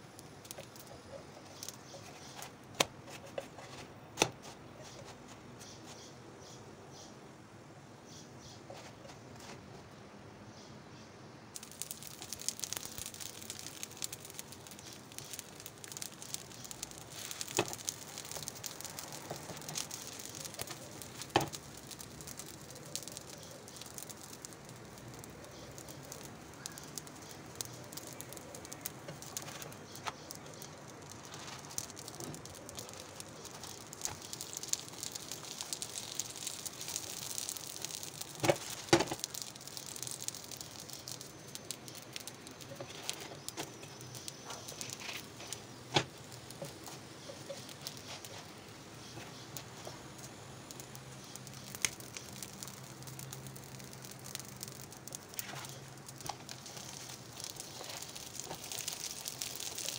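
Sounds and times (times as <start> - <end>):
food sizzling in a pan: 11.6 - 59.9.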